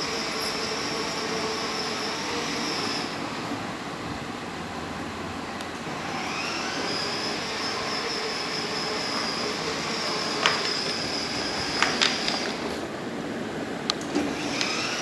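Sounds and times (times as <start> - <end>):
electric motor whine: 0.0 - 3.4, 5.8 - 12.9, 14.0 - 15.0.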